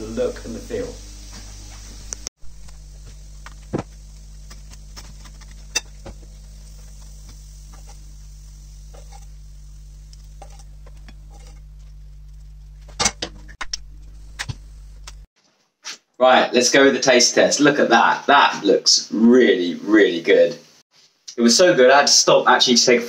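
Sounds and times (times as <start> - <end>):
low steady hum: 0.0 - 15.3.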